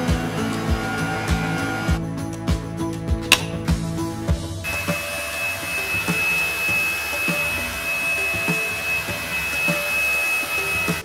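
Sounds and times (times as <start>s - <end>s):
vacuum motor whine: 0.0s - 2.0s, 4.7s - 11.0s.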